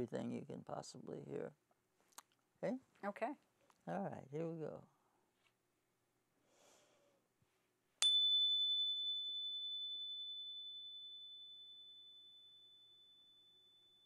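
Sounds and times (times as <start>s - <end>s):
hand chime ringing: 8.0s - 14.0s.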